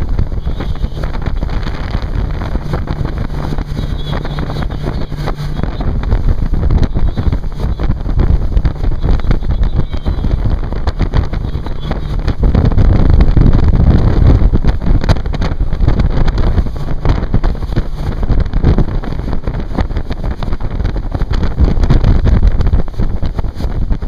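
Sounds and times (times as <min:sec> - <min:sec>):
boat rushing through water: 0:00.0 - 0:24.0
wind buffeting microphone: 0:00.0 - 0:24.0.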